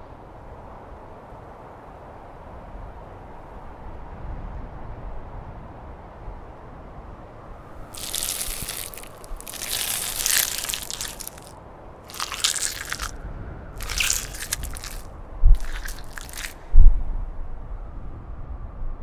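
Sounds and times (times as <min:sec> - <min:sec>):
wet crunching and squishing: 0:07.8 - 0:11.5, 0:12.1 - 0:13.2, 0:13.8 - 0:16.7.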